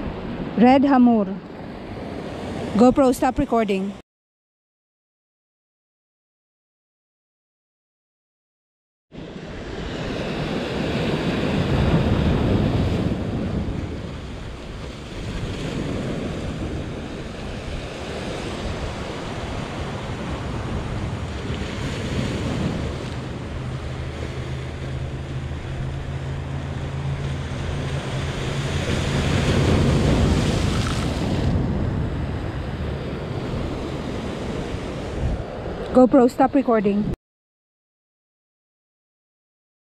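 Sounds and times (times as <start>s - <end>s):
wind on microphone: 9.2s - 37.2s
surf breaking over rocks: 10.0s - 32.1s.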